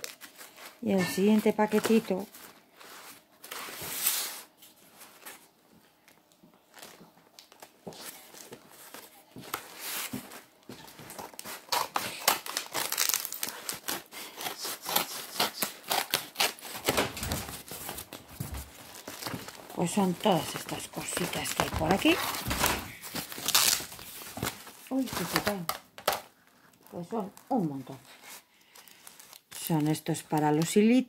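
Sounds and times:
paper and plastic crinkling: 0:00.0 - 0:31.0
scissors cutting: 0:13.8 - 0:17.0.

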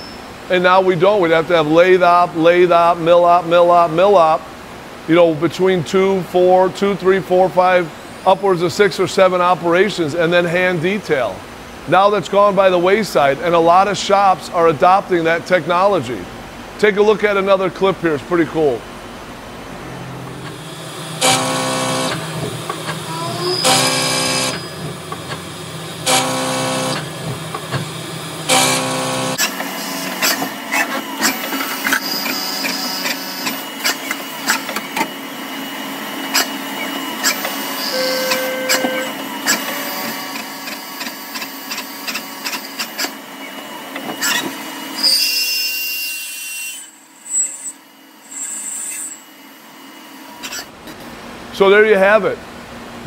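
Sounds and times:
steady machine hum: 0:00.2 - 0:41.0
lathe machining noise: 0:18.6 - 0:50.7
milling cutter cutting metal: 0:20.1 - 0:35.2.

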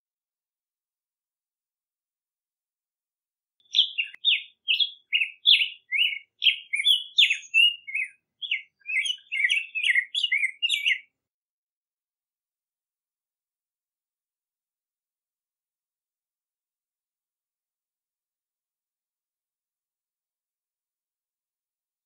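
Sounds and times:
bird singing warbled phrase: 0:03.6 - 0:11.1.

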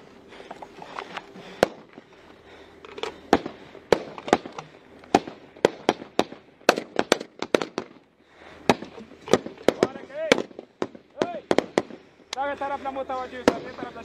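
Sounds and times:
rifle shots: 0:03.2 - 0:08.0, 0:08.7 - 0:12.0.

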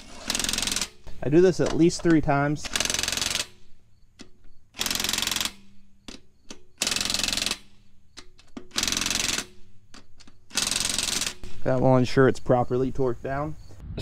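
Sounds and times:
impact wrench bursts: 0:00.0 - 0:03.6, 0:04.7 - 0:09.6, 0:10.2 - 0:11.6.

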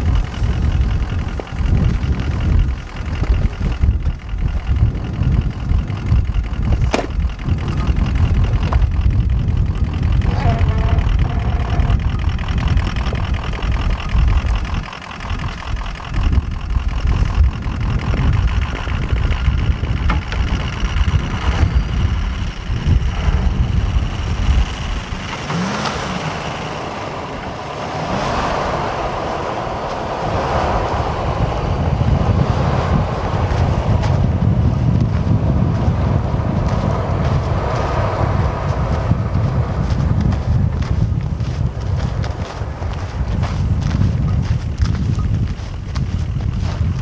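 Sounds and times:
truck engines revving under load: 0:00.0 - 0:47.0
wind buffeting microphone: 0:00.0 - 0:47.0.

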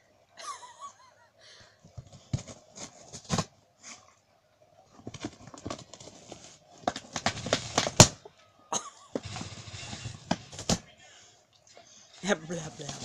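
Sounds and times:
cardboard ripping: 0:05.0 - 0:08.2, 0:09.2 - 0:10.8, 0:12.6 - 0:13.0.

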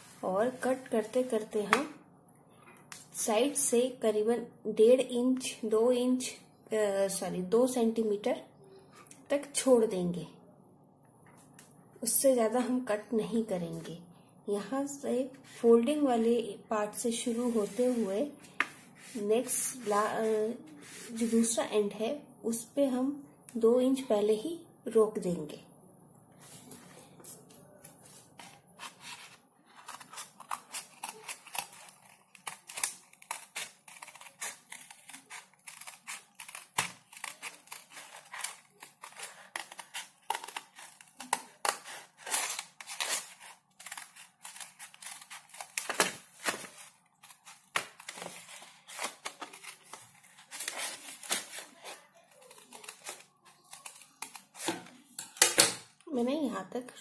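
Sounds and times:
scissors snipping paper: 0:28.4 - 0:55.7.

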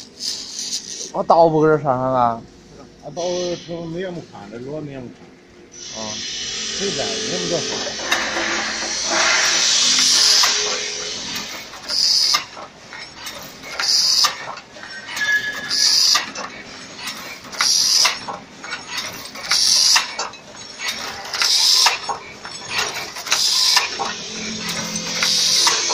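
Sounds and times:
high rushing hiss: 0:05.8 - 0:12.6, 0:23.2 - 0:25.9
weaving machine running: 0:06.2 - 0:25.9.

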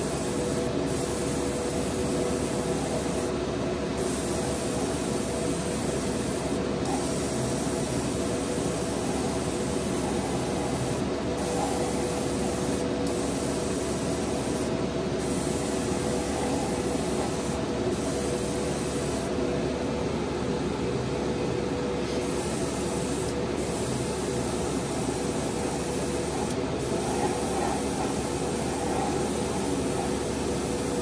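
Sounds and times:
airbrush hissing: 0:04.0 - 0:19.3, 0:22.2 - 0:31.0.

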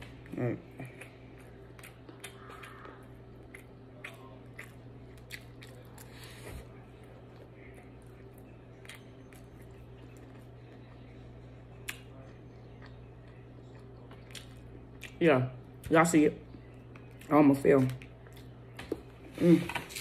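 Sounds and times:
steady low hum: 0:00.0 - 0:20.0
mouth chewing sounds: 0:00.6 - 0:06.4.

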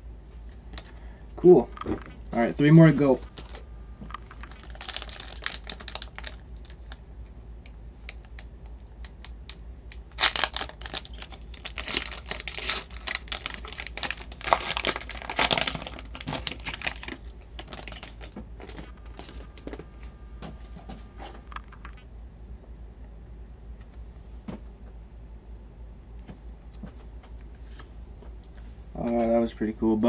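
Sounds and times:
foil pack crinkling and tearing: 0:03.0 - 0:19.9.

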